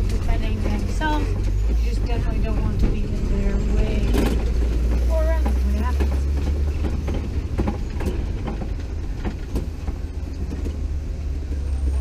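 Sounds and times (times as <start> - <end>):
truck low rumble: 0.0 - 12.0
vehicle knocks and rattles: 0.0 - 12.0.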